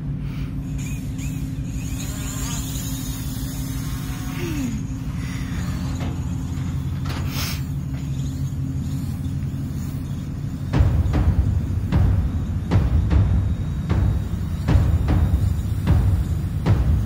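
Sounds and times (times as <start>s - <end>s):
drone propellers buzzing: 0.0s - 17.0s
low rumble: 4.7s - 17.0s.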